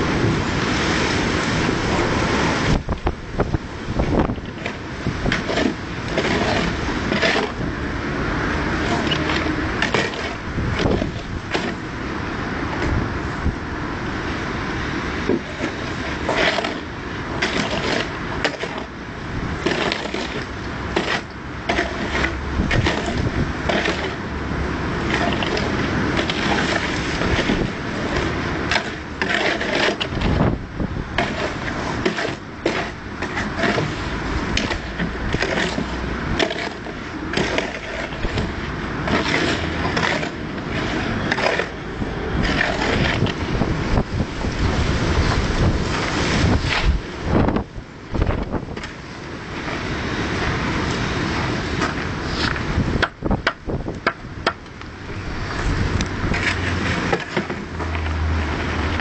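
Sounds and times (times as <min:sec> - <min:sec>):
hand tools scraping stone: 0:04.1 - 0:07.7, 0:08.5 - 0:11.8, 0:15.3 - 0:19.0, 0:19.6 - 0:24.3, 0:25.0 - 0:30.5, 0:31.2 - 0:43.6, 0:55.6 - 0:59.0.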